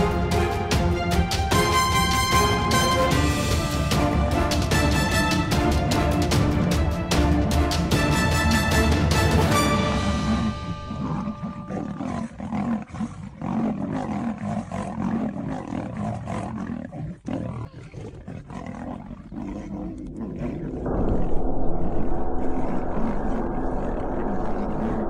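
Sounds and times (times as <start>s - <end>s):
big cats snarling and roaring: 8.4s - 25.0s
muffled rumble: 19.7s - 25.0s.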